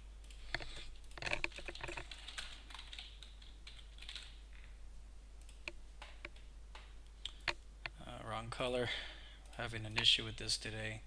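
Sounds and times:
typing on computer keyboard: 0.3s - 4.4s.

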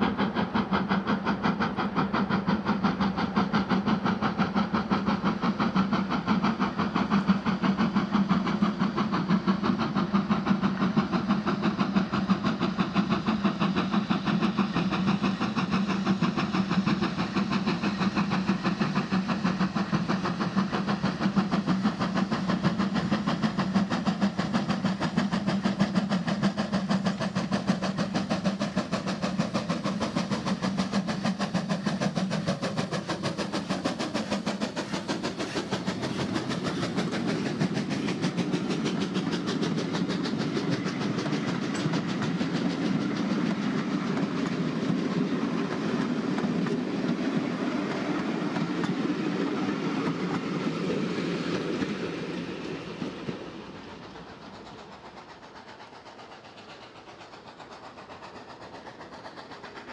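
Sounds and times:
steam locomotive exhaust beats: 0.0s - 59.9s.

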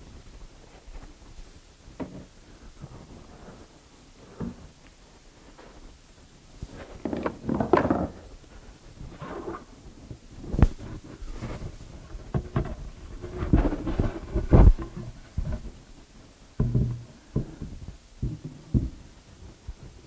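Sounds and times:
wooden knocks and thumps: 2.0s - 2.3s, 7.0s - 8.2s, 12.2s - 15.8s, 16.6s - 19.0s.

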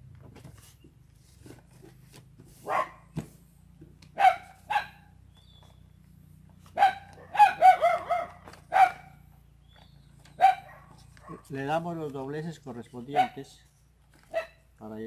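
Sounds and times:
dog barking: 2.6s - 3.1s, 4.2s - 5.1s, 6.7s - 9.2s, 10.4s - 11.5s, 13.1s - 13.5s, 14.3s - 14.6s.

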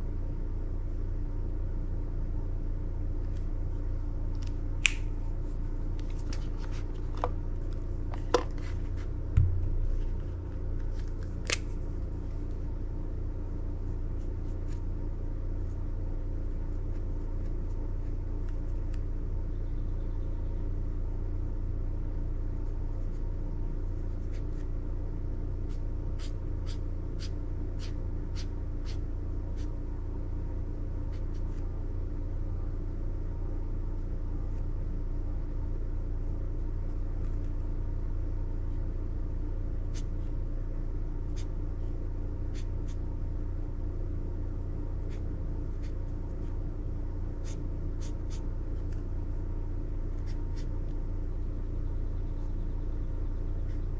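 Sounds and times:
low rumble: 3.4s - 16.6s
pen strokes on paper: 47.4s - 49.0s.

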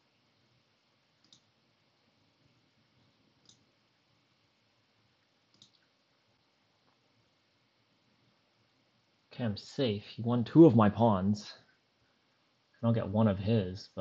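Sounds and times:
faint sharp clicks: 1.2s - 1.5s, 3.4s - 3.7s, 5.5s - 5.9s.

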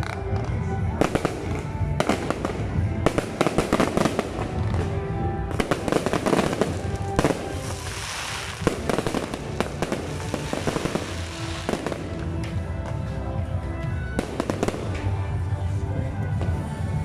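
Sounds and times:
fireworks crackling: 0.0s - 13.1s.

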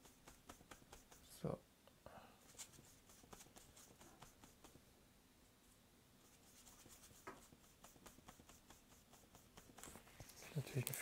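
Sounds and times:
paintbrush swishing on paper: 0.0s - 1.4s, 2.4s - 4.8s, 6.2s - 11.0s.

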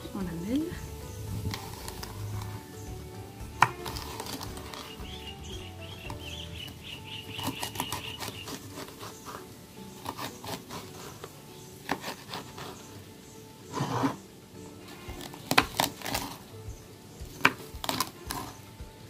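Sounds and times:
soft background music: 0.0s - 19.0s
cactus pad scraping across board: 0.3s - 18.9s
knife cutting on wooden board: 3.5s - 4.9s, 7.4s - 9.4s, 10.0s - 12.9s.

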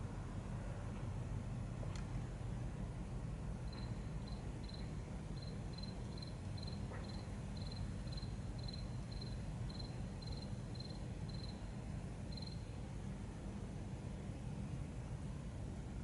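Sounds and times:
low background hum: 0.0s - 16.0s
cricket chirping: 3.7s - 12.8s.

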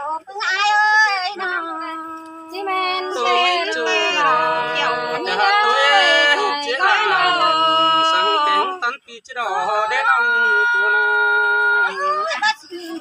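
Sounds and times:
man and woman singing unaccompanied: 1.9s - 10.8s.

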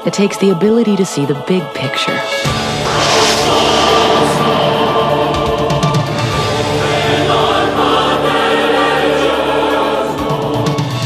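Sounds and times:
choir singing held chords: 2.5s - 11.0s.

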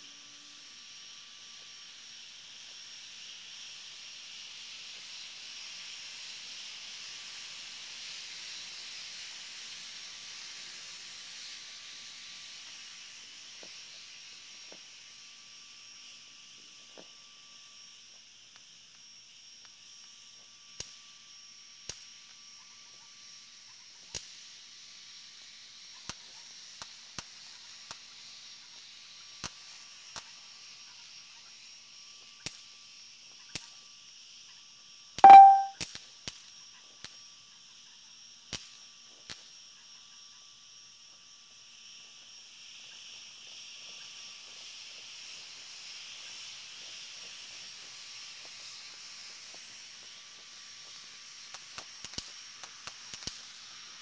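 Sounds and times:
crackling firework pops: 51.5s - 53.6s.

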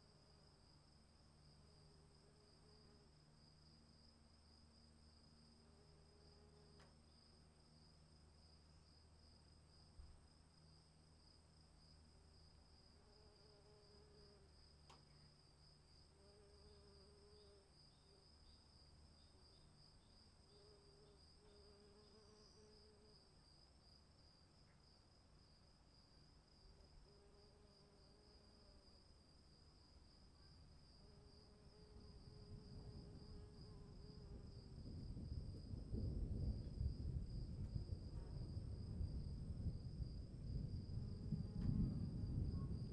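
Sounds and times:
crickets trilling: 0.0s - 42.9s
distant thunder rumble: 34.6s - 42.9s.

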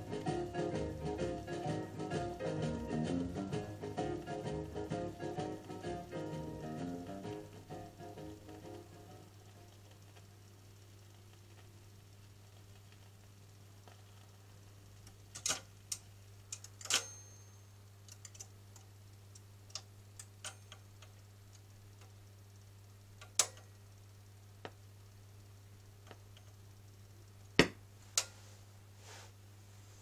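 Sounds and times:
steady low hum: 0.0s - 30.0s
record changer mechanism clicking: 23.2s - 23.8s.

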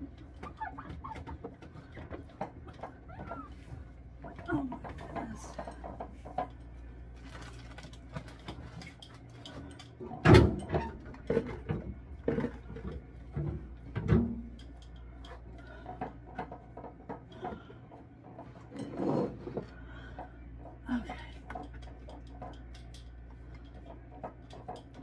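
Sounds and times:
knocks and clatter in refrigerator: 0.0s - 6.6s, 9.6s - 14.7s
low steady hum: 0.0s - 25.0s.

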